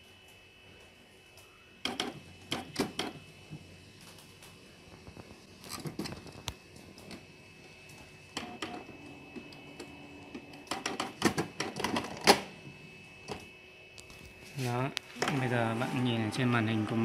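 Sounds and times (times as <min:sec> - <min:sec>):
faint printer hum: 0:00.0 - 0:17.0
inkjet printer clicking: 0:01.8 - 0:03.2, 0:08.4 - 0:12.5
printer rattling: 0:09.6 - 0:12.5.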